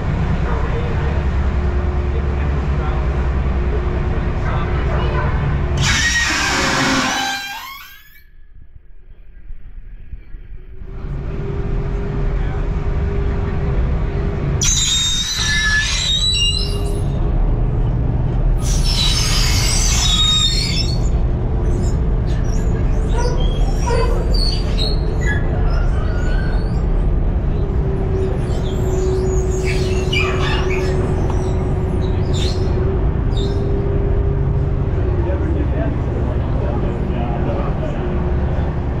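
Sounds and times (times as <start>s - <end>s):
ferry engine rumbling: 0.0s - 39.0s
high wavering squeals: 5.8s - 8.4s.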